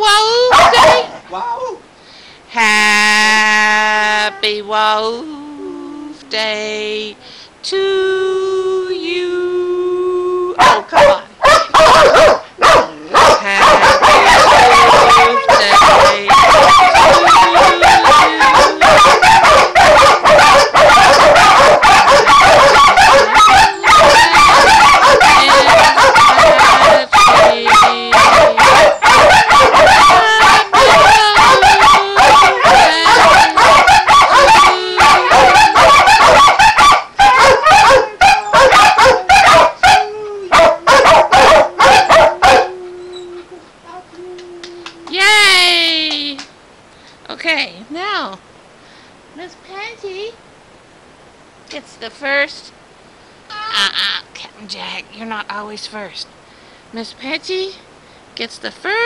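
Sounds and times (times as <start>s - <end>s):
dogs barking: 0.5s - 1.2s, 10.6s - 42.8s
dogs howling: 11.5s - 43.7s.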